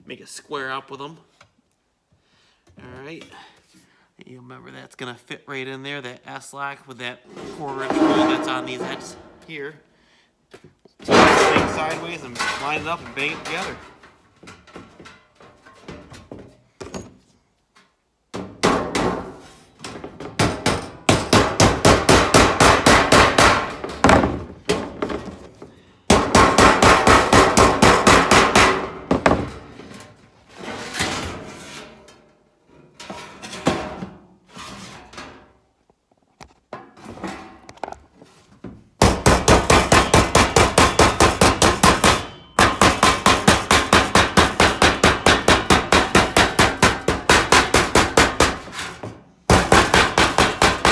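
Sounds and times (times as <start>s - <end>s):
hammer beating sheet steel: 7.7s - 9.5s, 11.1s - 13.8s, 20.4s - 23.9s, 26.1s - 29.2s, 39.0s - 48.9s, 49.5s - 50.9s.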